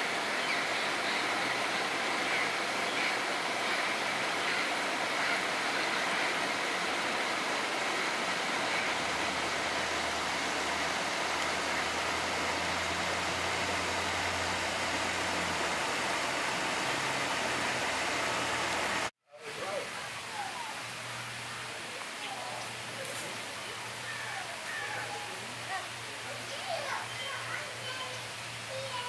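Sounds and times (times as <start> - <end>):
engine humming: 0.0 - 19.1
outdoor hiss: 0.0 - 29.0.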